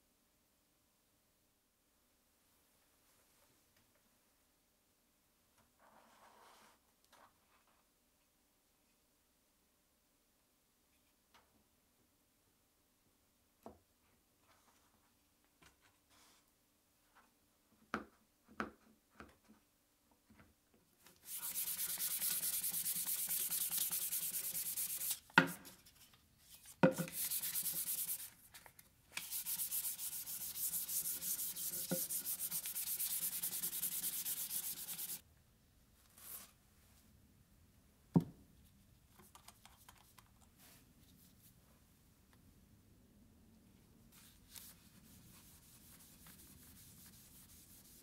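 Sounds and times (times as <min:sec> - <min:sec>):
sandpaper sanding wood: 0:21.3 - 0:25.2, 0:27.0 - 0:28.4, 0:29.2 - 0:35.2, 0:45.2 - 0:48.0.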